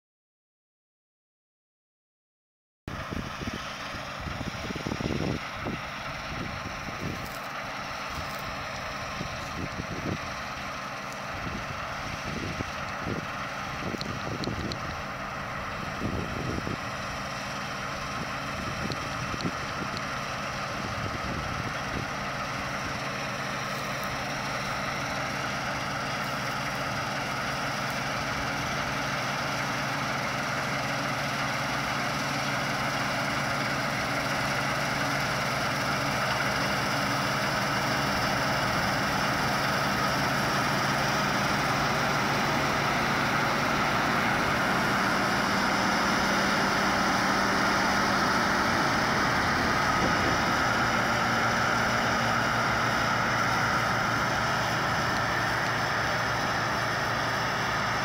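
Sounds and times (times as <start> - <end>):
combine harvester engine and threshing: 2.9 - 58.0.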